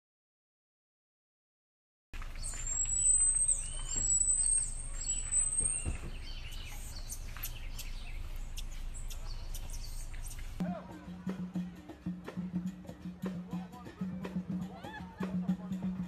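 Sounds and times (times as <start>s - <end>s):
high bird whistles: 2.4s - 10.6s
short bird chirps: 2.4s - 10.6s
steady low rumble: 6.2s - 10.6s.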